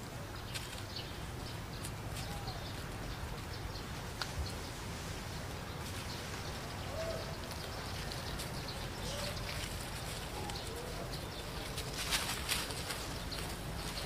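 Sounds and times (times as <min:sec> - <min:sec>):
rustling and clicks: 0:00.5 - 0:01.0, 0:07.4 - 0:14.0
soft cooing calls: 0:06.7 - 0:08.2, 0:08.8 - 0:12.3.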